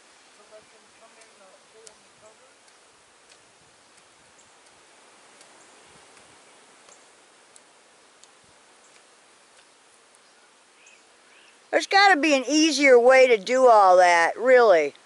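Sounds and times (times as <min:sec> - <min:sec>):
outdoor background hiss: 0:00.0 - 0:15.0
soft ticks: 0:01.0 - 0:10.3.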